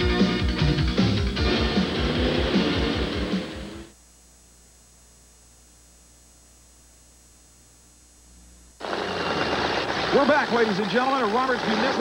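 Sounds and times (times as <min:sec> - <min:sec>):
faint electrical hum: 0:03.7 - 0:08.8
stadium crowd noise: 0:08.8 - 0:12.0.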